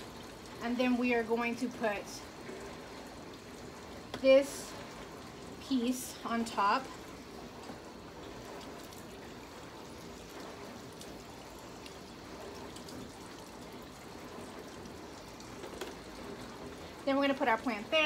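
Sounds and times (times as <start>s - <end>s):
water running from a tap: 0.0s - 18.0s.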